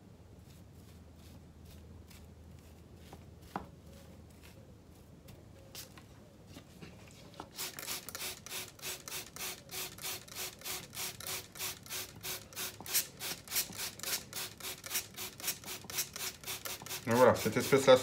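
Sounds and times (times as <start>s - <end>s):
cloth rubbing on ceramic pot: 15.0s - 18.0s.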